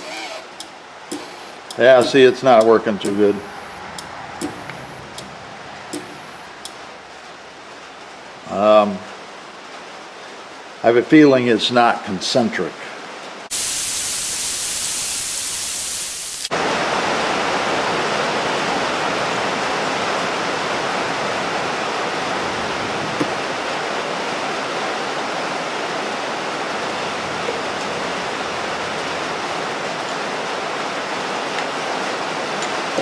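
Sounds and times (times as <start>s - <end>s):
broad even rushing noise: 0.7s - 8.4s
bright hiss: 13.5s - 16.5s.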